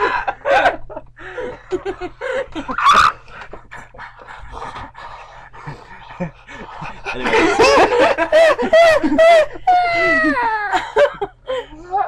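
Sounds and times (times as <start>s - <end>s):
people laughing: 0.0s - 4.9s, 5.6s - 11.7s
person squealing: 2.7s - 3.2s, 9.7s - 10.6s.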